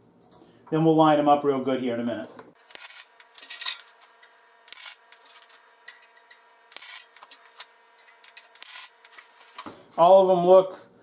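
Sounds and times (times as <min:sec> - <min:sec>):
faint steady hum: 0:00.0 - 0:11.0
welding crackling bursts: 0:02.6 - 0:09.6.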